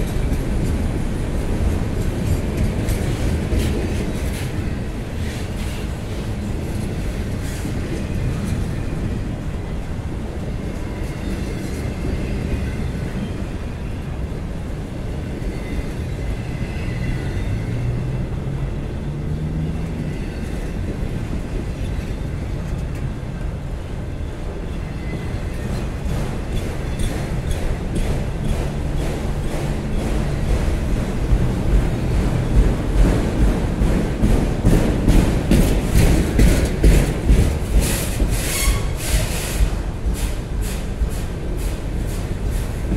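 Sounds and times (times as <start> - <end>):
sharp clicks of train wheels: 0.0 - 9.6, 19.7 - 23.8, 24.5 - 42.9
train wheels rumbling on rail: 0.0 - 42.9.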